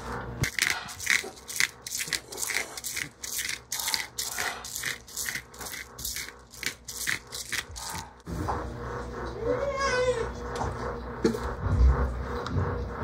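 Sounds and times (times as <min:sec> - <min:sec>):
pepper and salt grinder rattle: 0:00.4 - 0:08.2.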